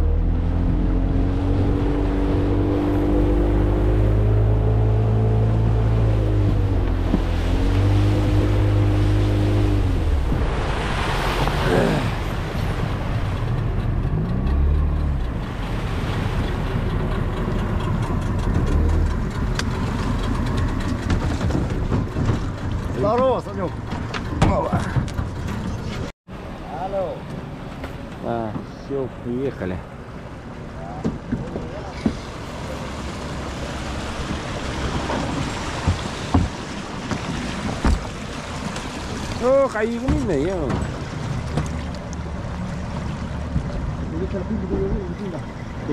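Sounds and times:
low thumps: 0:00.0 - 0:11.6
engine rumbling: 0:00.0 - 0:45.9.

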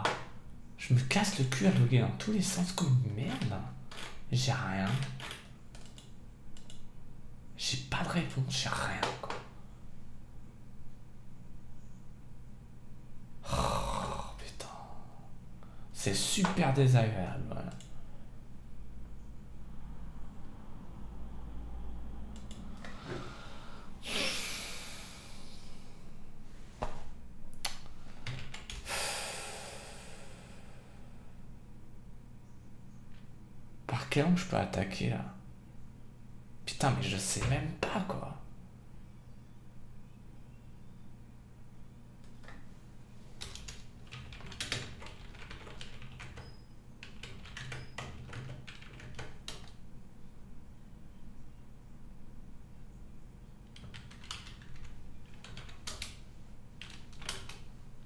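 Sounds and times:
computer keyboard typing: 0:04.9 - 0:06.8, 0:27.6 - 0:28.8, 0:43.4 - 0:49.8, 0:53.7 - 0:56.2, 0:56.8 - 0:57.7
man sighing heavily: 0:13.4 - 0:15.8, 0:22.9 - 0:26.0, 0:28.8 - 0:31.1.

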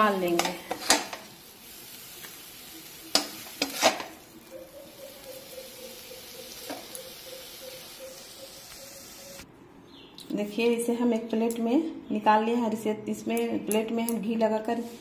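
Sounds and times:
low sizzle: 0:00.0 - 0:09.5
metal spatula scraping a pan: 0:03.1 - 0:04.2.

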